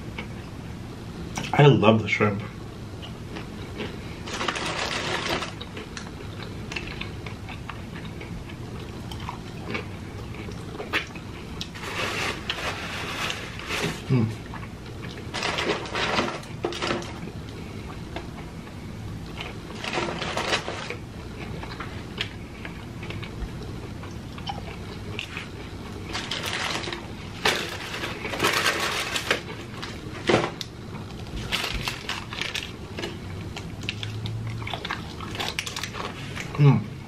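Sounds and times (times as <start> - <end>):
chewing food: 3.0 - 11.8, 17.1 - 36.6
paper rustling: 11.7 - 14.1, 15.3 - 17.1, 19.8 - 21.0, 26.1 - 30.5, 31.3 - 32.7.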